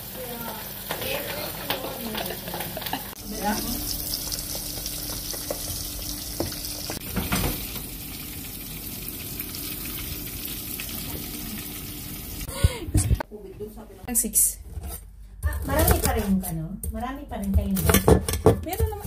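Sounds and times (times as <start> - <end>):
meat sizzling in hot oil: 0.0 - 12.5.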